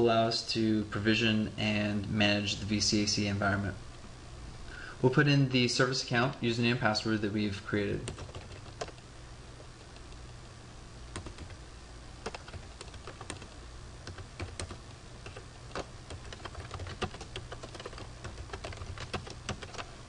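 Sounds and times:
steady low hum: 0.0 - 20.0
computer keyboard typing: 8.0 - 9.0, 11.1 - 11.6, 12.2 - 19.9.

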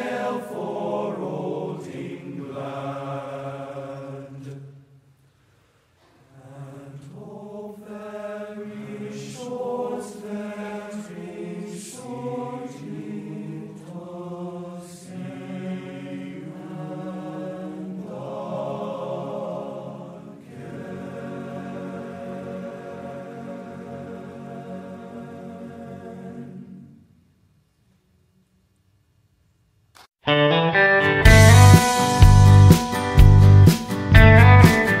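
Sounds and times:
low voices chanting: 0.0 - 4.8, 6.2 - 27.0.

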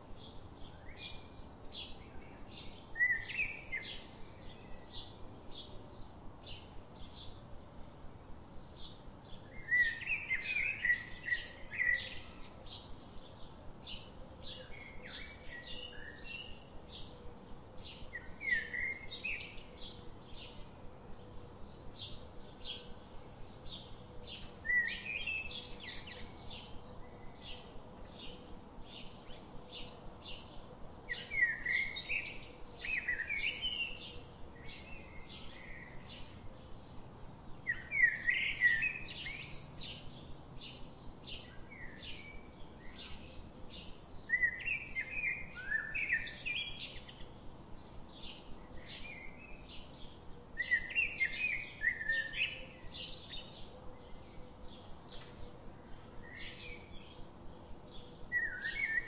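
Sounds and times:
bird warbling song: 0.2 - 5.7, 8.6 - 17.1, 23.6 - 59.0.

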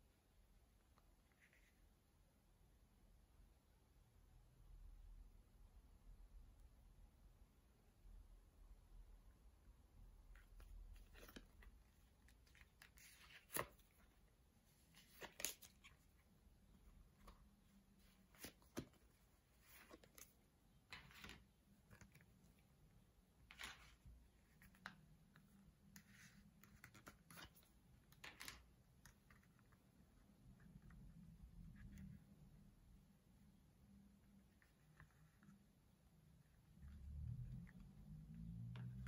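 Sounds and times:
cards sliding in pockets: 10.4 - 14.2, 14.8 - 22.2
leather card holders rustling: 10.4 - 22.4.

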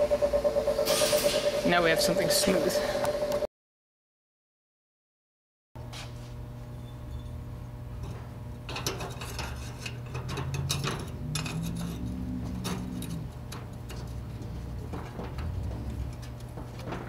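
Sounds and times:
steady low hum: 0.0 - 3.5, 5.8 - 17.0
metal clinks and scrapes: 8.7 - 17.0.

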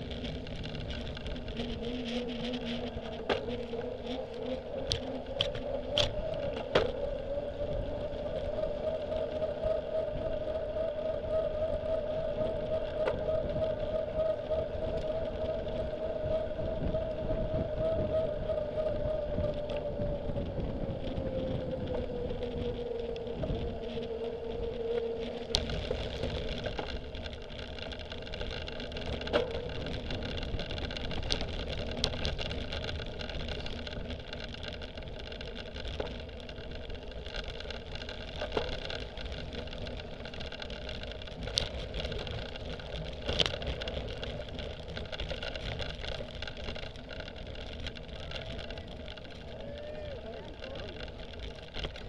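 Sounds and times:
bike tyre hum: 0.0 - 52.0
wind rushing over camera: 0.0 - 52.0.

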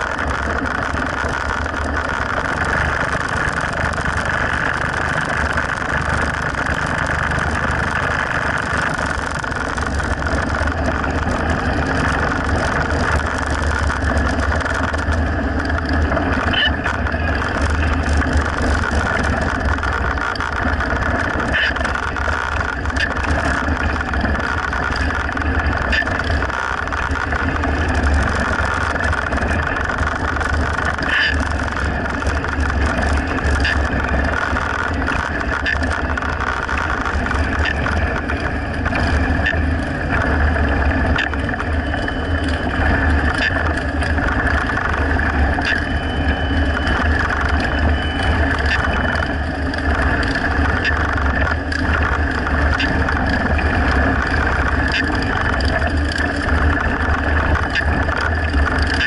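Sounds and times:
motorcycle engines droning: 0.0 - 59.0.

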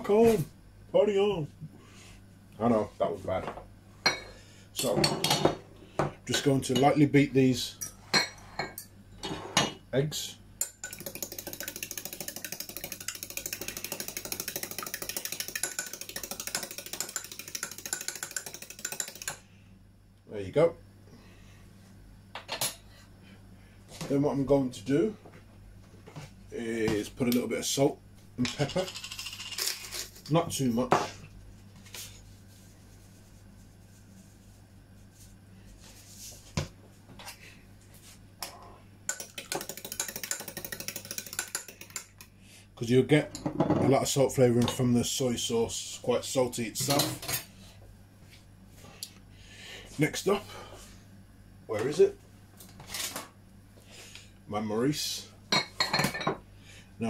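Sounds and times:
fork beating eggs in ceramic bowl: 10.6 - 19.4, 39.1 - 42.3
containers clicking and knocking: 10.7 - 19.4, 39.1 - 42.3.

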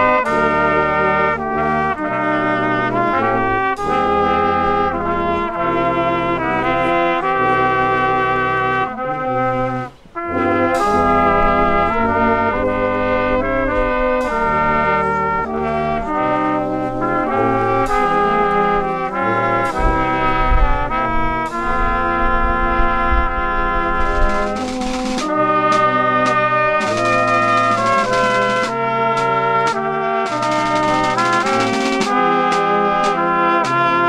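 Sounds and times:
brass band playing: 0.0 - 34.0
snare drum strokes: 10.2 - 12.0, 16.1 - 20.2, 24.0 - 34.0.

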